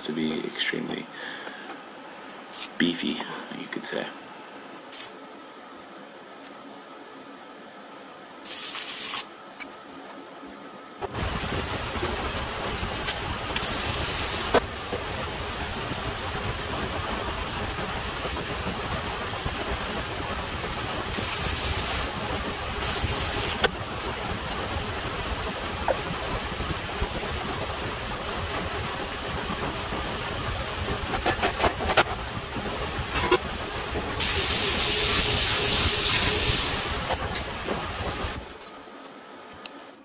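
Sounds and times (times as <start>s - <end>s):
arc welding crackle: 2.5s - 2.8s, 4.9s - 5.2s, 8.4s - 9.7s, 11.0s - 38.6s
steady machine noise: 7.4s - 40.0s
sharp clicks and knocks: 31.0s - 32.2s.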